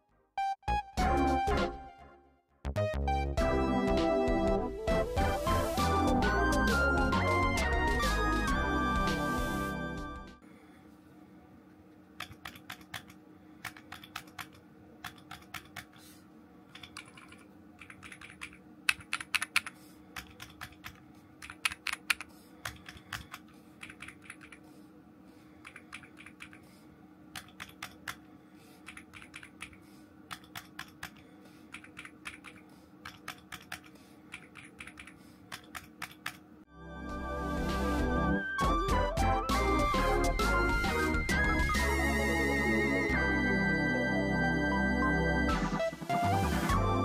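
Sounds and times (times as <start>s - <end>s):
mechanical keyboard keys clacking: 12.2s - 16.0s, 16.7s - 24.6s, 25.6s - 26.6s, 27.3s - 28.2s, 28.8s - 36.4s
spacebar keystroke echoing: 16.8s - 24.6s, 28.9s - 36.4s.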